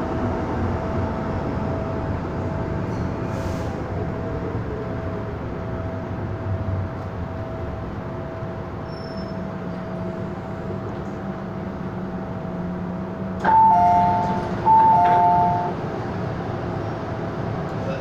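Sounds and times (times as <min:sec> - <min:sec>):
train running noise: 0:00.0 - 0:18.0
two-note door chime: 0:13.4 - 0:15.8.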